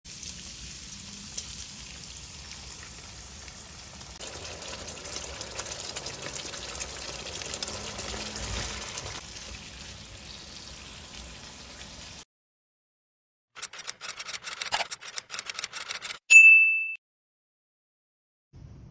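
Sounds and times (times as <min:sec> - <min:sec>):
sauce sizzling in a frying pan: 0:00.1 - 0:12.2.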